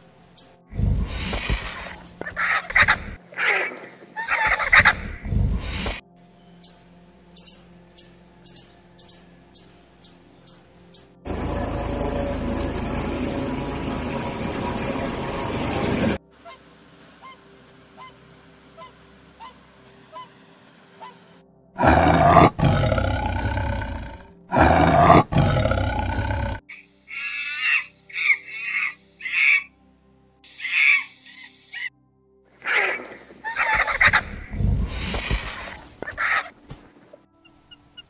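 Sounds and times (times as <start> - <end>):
high monkey calls: 2.3 - 5.2, 7.4 - 11.1, 17.2 - 17.4, 18.0 - 20.4, 21.0 - 21.2, 26.7 - 29.7, 30.5 - 31.9, 32.6 - 34.4
tiger roaring: 21.8 - 26.6.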